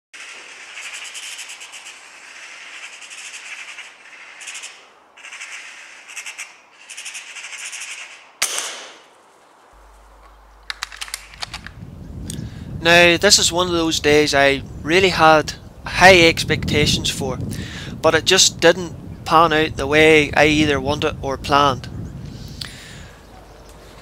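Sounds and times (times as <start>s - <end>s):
magpie chattering: 0.2s - 8.3s
air rifle shot: 8.4s - 9.1s
light clicks: 10.2s - 12.4s.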